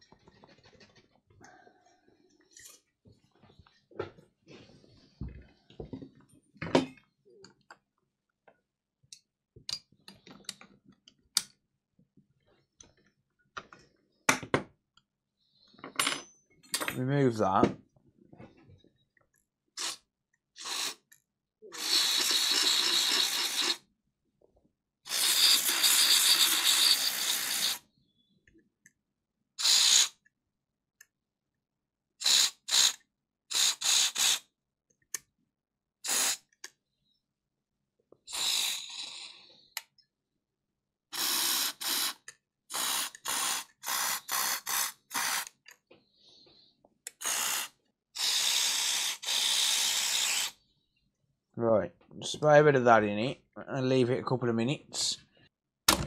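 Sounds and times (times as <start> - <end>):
aerosol spray hissing: 20.6 - 21.0, 21.8 - 23.8, 25.1 - 27.8, 29.6 - 30.2, 32.2 - 34.4, 36.0 - 36.5, 38.3 - 39.4, 41.2 - 45.5, 47.1 - 50.6.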